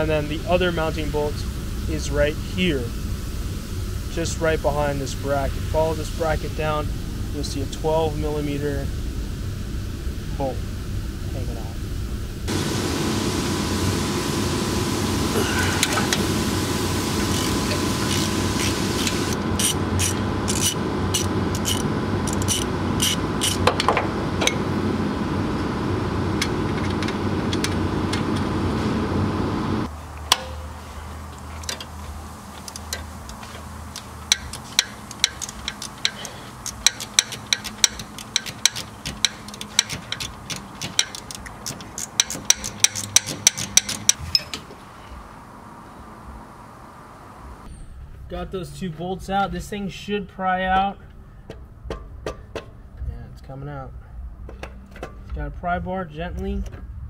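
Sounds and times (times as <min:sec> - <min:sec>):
loud steady wrench noise: 0:12.5 - 0:24.6, 0:32.6 - 0:44.5
ratchet clicks: 0:17.3 - 0:23.6, 0:32.6 - 0:44.6.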